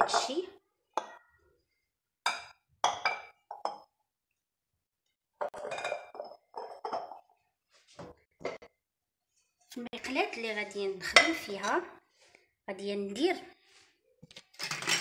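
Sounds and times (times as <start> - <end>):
bowls and dishes clinking: 0.0 - 0.4, 2.3 - 3.9, 5.4 - 7.4, 8.0 - 8.8, 11.0 - 11.9, 14.3 - 15.0.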